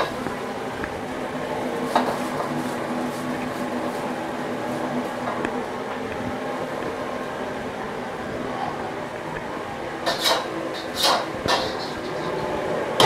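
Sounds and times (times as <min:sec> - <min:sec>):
cloth scraping wok: 0:00.0 - 0:05.4, 0:10.0 - 0:13.0
wok metal clank: 0:01.9 - 0:02.6, 0:10.0 - 0:13.0.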